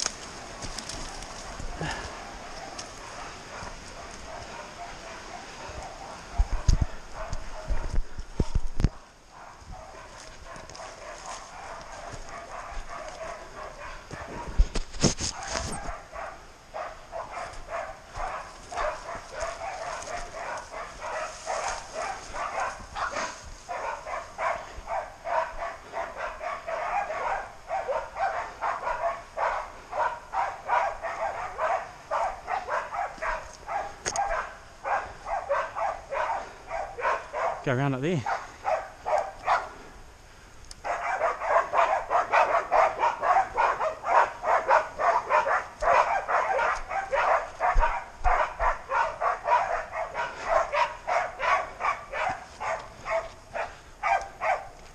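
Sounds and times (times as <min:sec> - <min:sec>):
dogs barking rapidly: 0:00.0 - 0:39.9, 0:40.8 - 0:54.9.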